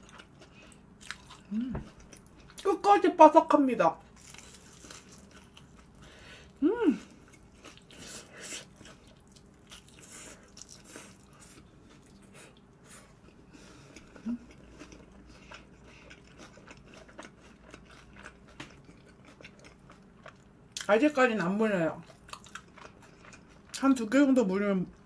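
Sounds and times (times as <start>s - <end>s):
crunching and chewing: 0.0s - 2.7s, 4.1s - 20.9s, 22.0s - 24.0s
person humming: 1.5s - 1.9s, 6.6s - 7.1s.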